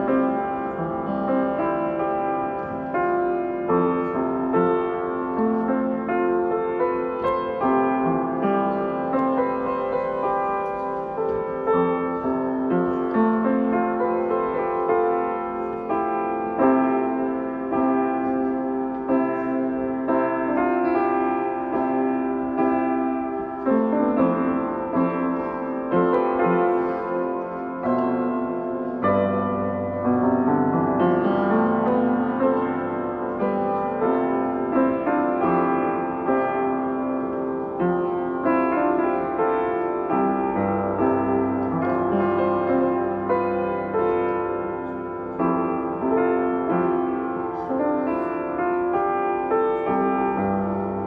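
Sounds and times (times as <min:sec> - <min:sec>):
piano music: 0:00.0 - 0:51.0.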